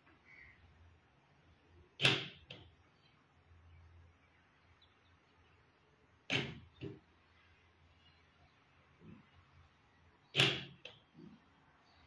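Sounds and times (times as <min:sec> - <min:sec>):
door lock actuator clunk: 0:02.0 - 0:02.6, 0:10.3 - 0:10.9.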